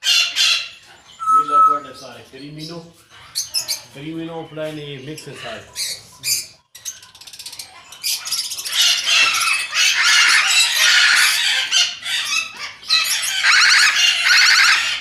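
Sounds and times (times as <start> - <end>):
parrot screeching: 0.0 - 1.8, 8.1 - 15.0.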